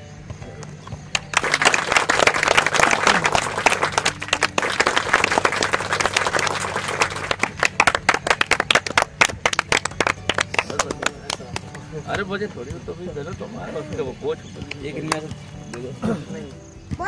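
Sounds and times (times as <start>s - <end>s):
group of people clapping: 1.1s - 12.3s, 14.6s - 16.0s.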